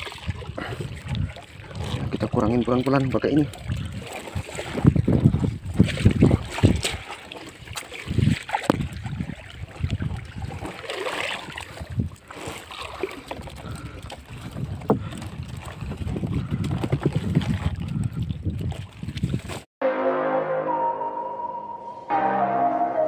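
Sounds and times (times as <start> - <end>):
wind buffeting microphone: 0.0 - 7.1, 8.0 - 10.8, 11.4 - 12.6, 13.2 - 19.6.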